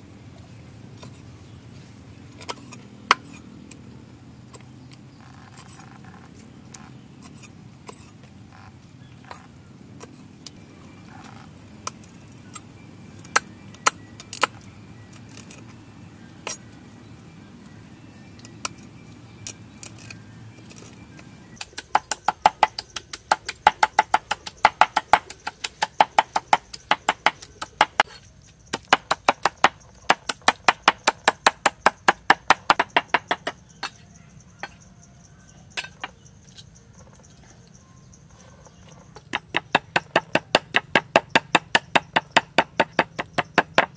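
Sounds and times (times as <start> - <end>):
cleaver chopping on wooden board: 21.6 - 28.1, 28.7 - 34.0, 39.2 - 43.9.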